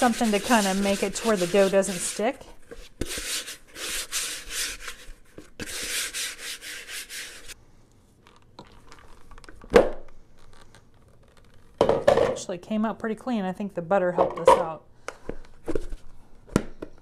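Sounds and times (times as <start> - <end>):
hand rubbing plastic bowl: 0.0 - 7.6.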